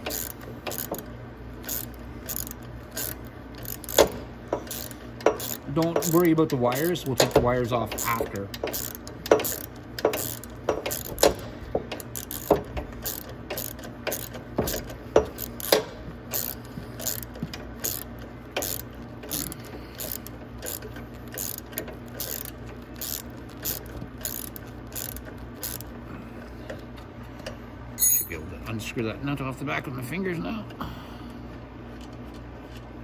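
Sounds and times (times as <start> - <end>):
hand ratchet clicking: 0.0 - 25.9.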